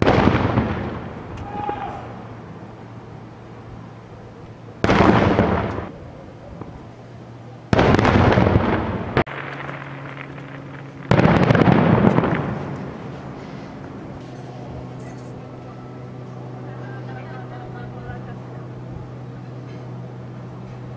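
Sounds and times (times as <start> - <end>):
sharp firework crack: 0.0 - 2.2, 4.8 - 6.0, 7.7 - 14.0
firework shells booming: 0.0 - 2.4, 4.8 - 7.0, 7.6 - 15.5.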